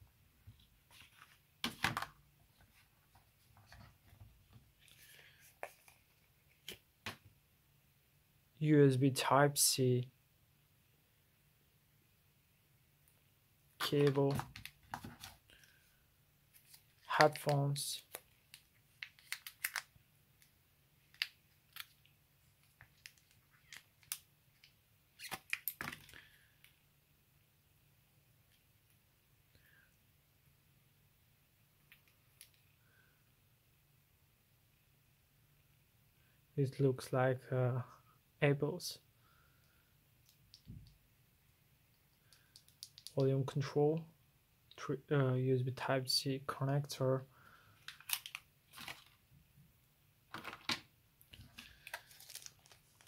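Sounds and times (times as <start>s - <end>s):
packaging rustling and clicking: 16.6s - 19.9s, 47.9s - 49.2s, 50.3s - 53.0s
packaging clatter: 50.3s - 53.0s.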